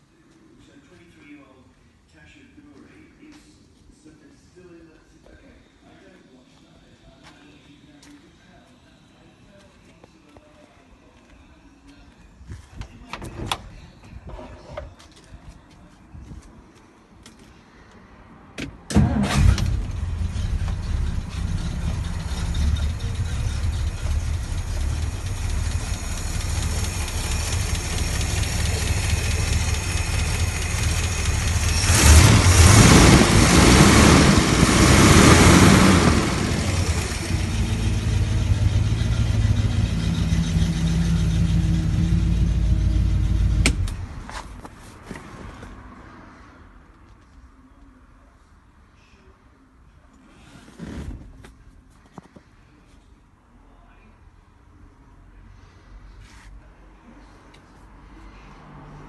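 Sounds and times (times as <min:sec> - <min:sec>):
car engine cranking: 0:18.9 - 0:44.0
car engine running: 0:19.3 - 0:44.0.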